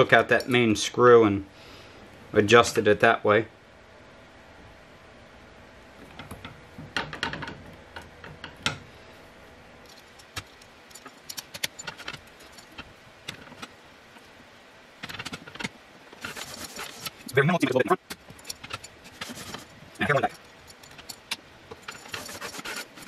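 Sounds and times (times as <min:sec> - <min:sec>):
metal hardware clicking and clinking: 0:09.8 - 0:13.7, 0:18.0 - 0:22.3.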